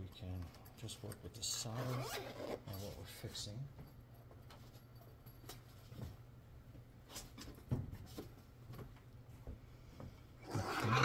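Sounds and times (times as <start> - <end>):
low steady room hum: 0.0 - 11.0.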